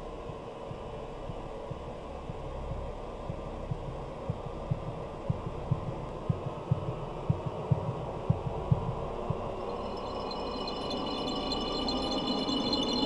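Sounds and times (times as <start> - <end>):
heartbeat-like low thuds: 0.0 - 10.1.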